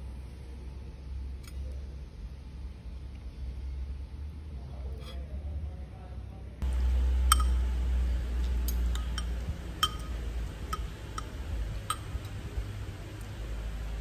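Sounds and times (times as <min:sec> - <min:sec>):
low steady hum: 0:00.0 - 0:14.0
cutlery clinking on ceramic: 0:09.0 - 0:11.3.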